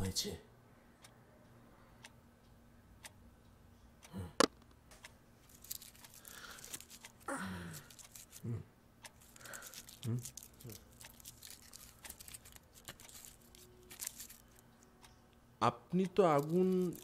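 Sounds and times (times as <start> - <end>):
rustling and crinkling: 5.4 - 8.4, 9.2 - 14.6, 16.4 - 17.0
clock ticking: 15.8 - 17.0.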